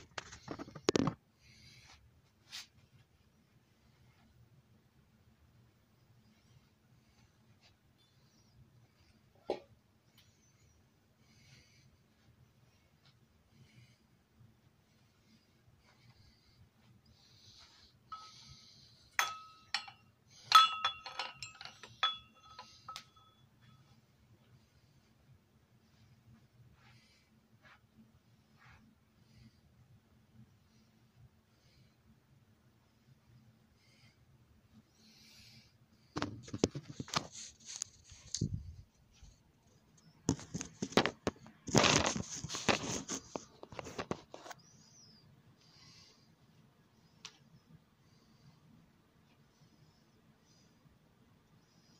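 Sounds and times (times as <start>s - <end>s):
soft rustle: 0.0s - 4.4s, 36.3s - 46.2s.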